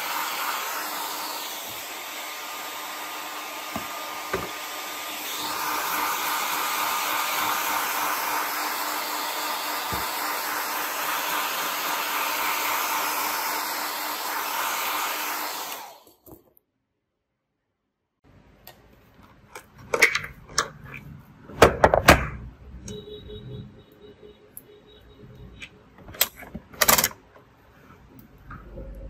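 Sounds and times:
hot-air blower running: 0.0s - 16.2s.

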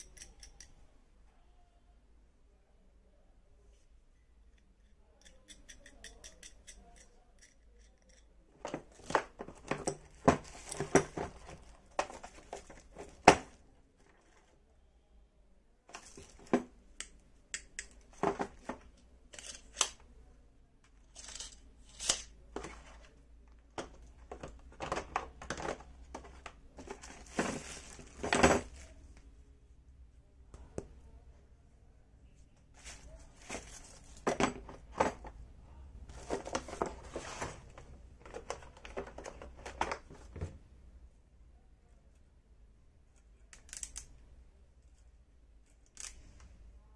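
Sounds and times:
tools clacking on plastic case: 8.6s - 13.6s, 23.8s - 28.8s, 33.4s - 35.4s, 36.1s - 40.5s.

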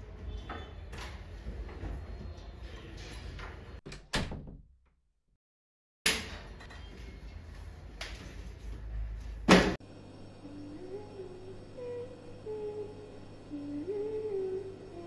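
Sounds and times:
door shutting: 2.9s - 4.7s
room noise: 6.1s - 15.0s.

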